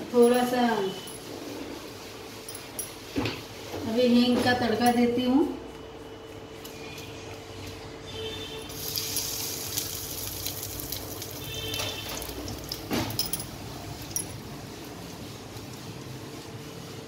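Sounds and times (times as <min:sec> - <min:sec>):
hot oil sizzling and crackling: 0:08.7 - 0:16.2.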